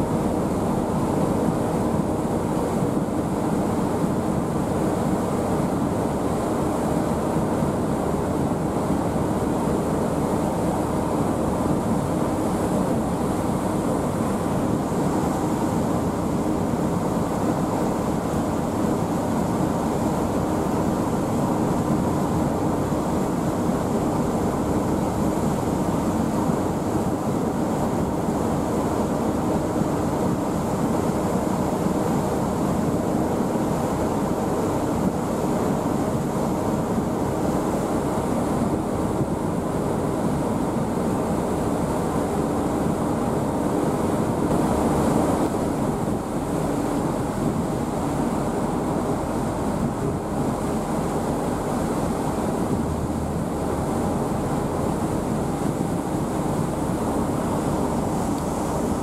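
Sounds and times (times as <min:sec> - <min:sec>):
wind: 0:00.0 - 0:59.0
rushing water: 0:43.7 - 0:59.0
low drone: 0:52.5 - 0:59.0.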